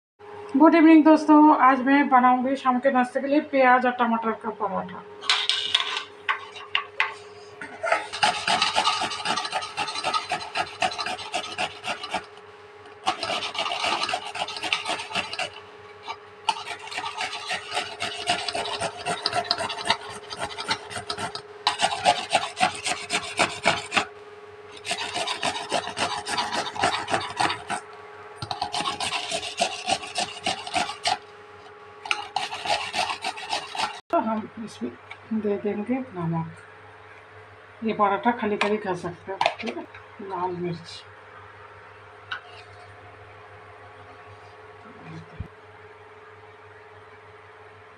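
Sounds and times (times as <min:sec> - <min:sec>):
tomato grated on metal grater: 0:07.9 - 0:24.1, 0:24.8 - 0:27.8, 0:28.4 - 0:31.2, 0:32.0 - 0:34.0.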